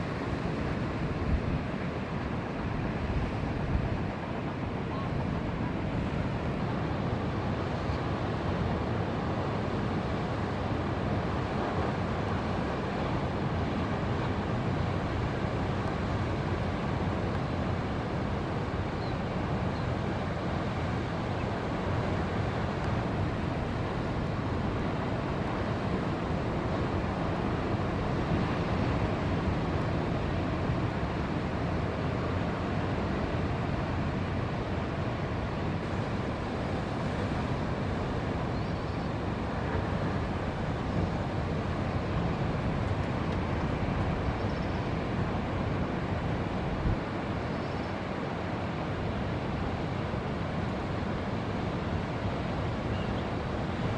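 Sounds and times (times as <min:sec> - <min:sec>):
ocean surf and breaking waves: 0:00.0 - 0:53.9.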